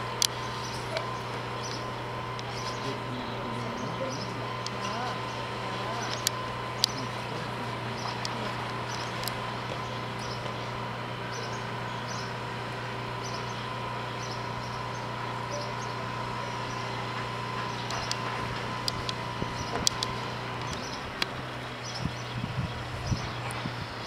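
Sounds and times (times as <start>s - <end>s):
constant high tone: 0.0s - 18.3s
mechanical hum: 0.0s - 24.0s.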